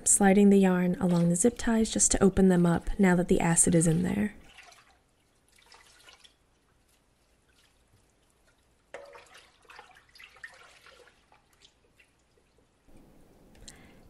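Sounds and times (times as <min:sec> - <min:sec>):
water dripping and splashing in a pot: 0:03.6 - 0:12.9.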